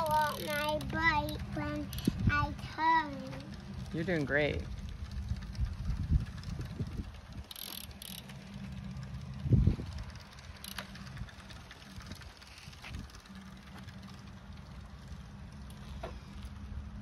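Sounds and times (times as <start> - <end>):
bike tyres rumbling on asphalt: 0.0 - 17.0.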